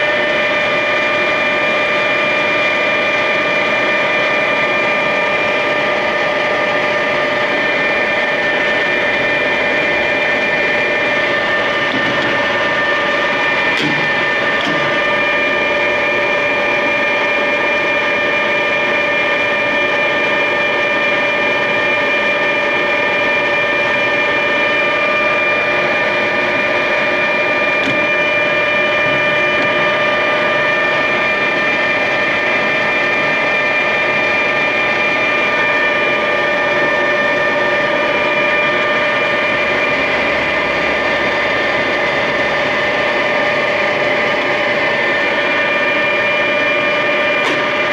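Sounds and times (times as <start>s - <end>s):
lathe whirring with whining tones: 0.0s - 47.9s.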